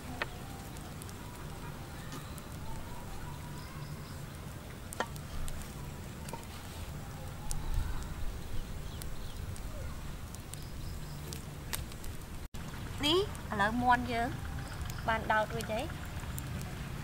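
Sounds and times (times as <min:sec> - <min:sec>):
low outdoor rumble: 0:00.0 - 0:17.0.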